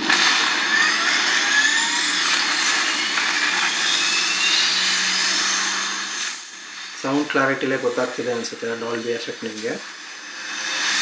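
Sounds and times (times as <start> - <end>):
jet engine rising whines: 0.0 - 11.0.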